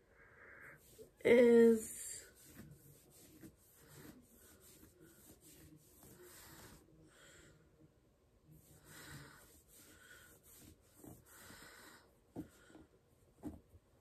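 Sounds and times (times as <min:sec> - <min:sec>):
soft rustles: 0:08.6 - 0:14.0.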